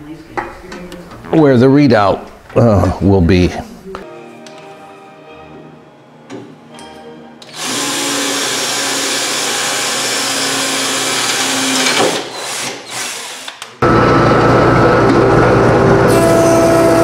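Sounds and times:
handheld power drill running: 7.4 - 13.9.

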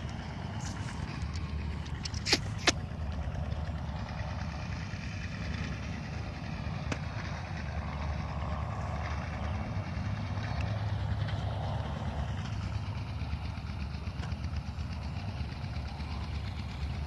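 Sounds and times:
steady low rumble: 0.0 - 17.0
hoe striking dry ground: 2.0 - 2.9.

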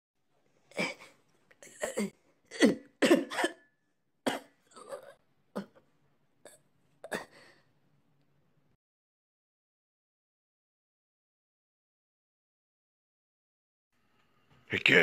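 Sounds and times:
person coughing and gagging: 0.7 - 5.8, 6.5 - 7.5.

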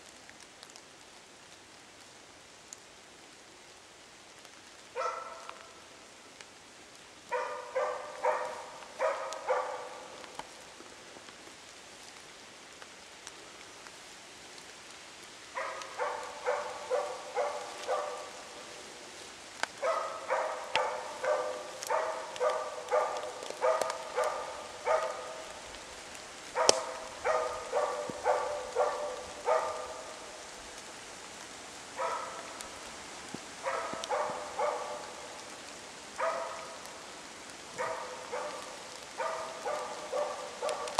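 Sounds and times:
dog barking: 5.0 - 5.8, 7.3 - 10.2, 15.5 - 18.8, 19.8 - 25.7, 26.5 - 30.3, 32.0 - 32.6, 33.6 - 35.4, 36.2 - 36.9, 37.7 - 40.9.

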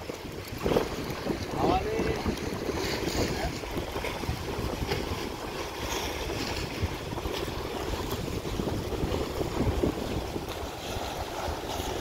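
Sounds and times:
small waves lapping on rocks: 0.0 - 12.0
wind buffeting microphone: 0.0 - 12.0.

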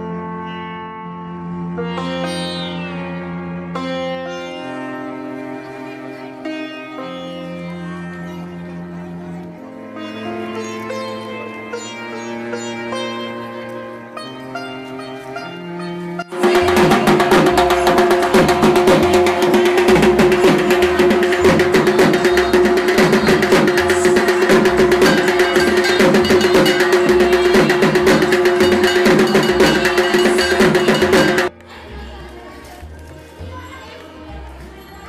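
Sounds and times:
barrel drums beaten fast: 16.3 - 31.5
held ringing tone: 16.3 - 31.5.

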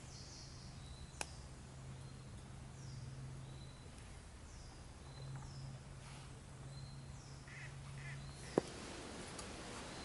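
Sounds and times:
high falling bird calls: 0.0 - 10.0
short lower bird calls: 6.8 - 8.7.

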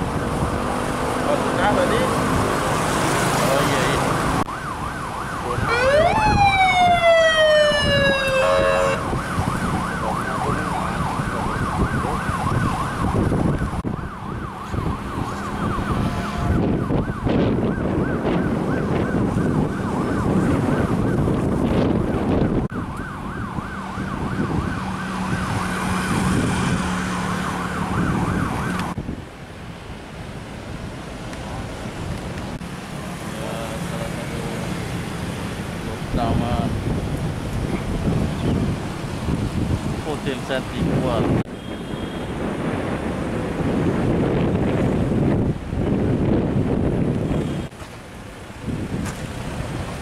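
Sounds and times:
engine noise: 0.0 - 13.4
emergency sirens wailing: 0.0 - 29.0.

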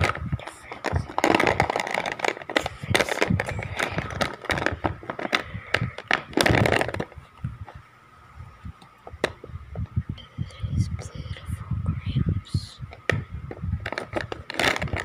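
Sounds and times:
wax crayons clattering in a box: 0.0 - 7.2, 13.8 - 15.0.

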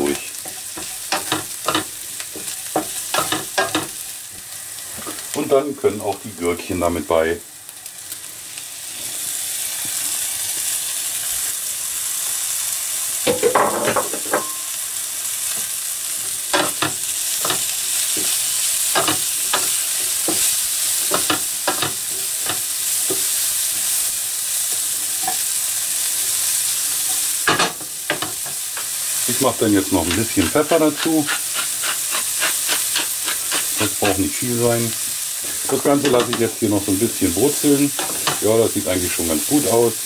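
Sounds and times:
food sizzling in a frying pan: 0.0 - 40.0
wooden spatula scraping a pan: 29.8 - 34.3.

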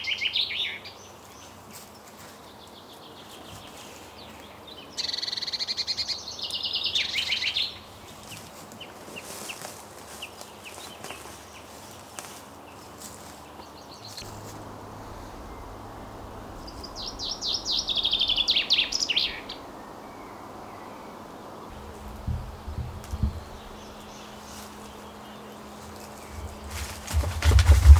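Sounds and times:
small songbird singing: 0.0 - 1.5, 2.5 - 9.6, 13.4 - 26.9
low rumble: 14.2 - 21.1, 21.7 - 24.5.

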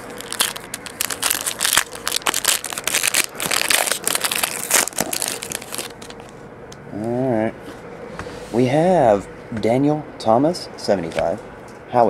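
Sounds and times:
foil card pack crinkling: 0.0 - 6.4.

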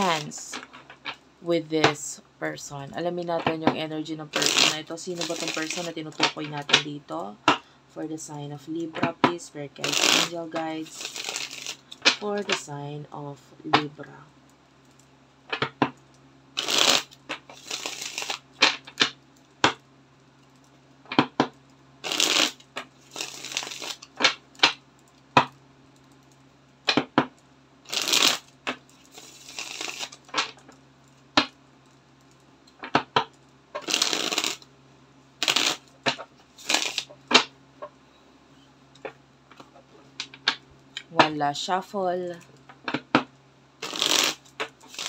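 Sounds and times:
cards being shuffled: 0.0 - 1.2, 4.4 - 6.9, 8.9 - 12.6, 16.6 - 19.8, 21.1 - 24.8, 27.9 - 30.8, 32.8 - 34.6, 35.4 - 37.5, 43.8 - 45.0
cards slapping and tapping: 15.5 - 16.0, 16.6 - 19.8, 21.1 - 24.8, 26.9 - 27.3, 28.0 - 30.8, 32.8 - 34.6, 35.5 - 37.5.

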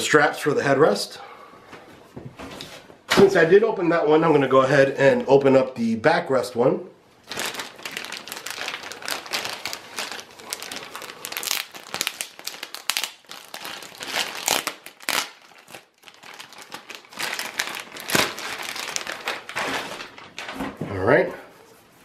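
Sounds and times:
plastic bag crinkling: 7.2 - 20.6.

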